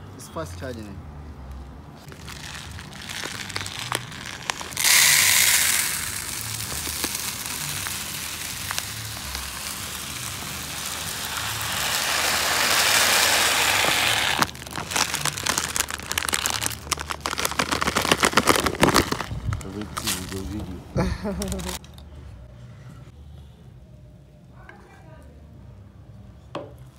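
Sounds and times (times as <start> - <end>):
rice pouring into plastic tub: 2.1 - 20.4
pouch crinkling: 2.1 - 20.6, 21.3 - 21.8.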